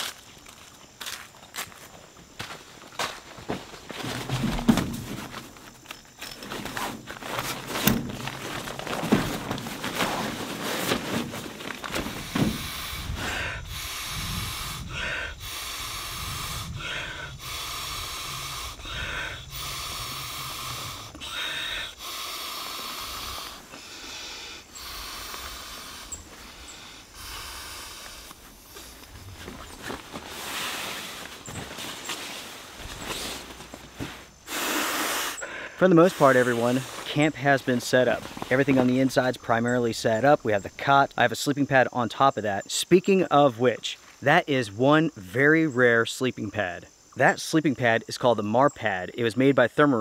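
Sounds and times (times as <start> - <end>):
knocks and rustles of pad: 3.5 - 5.7, 6.4 - 12.7
man blowing into valve: 12.1 - 28.8, 34.4 - 36.9
short breaths: 12.1 - 29.3, 32.2 - 37.1.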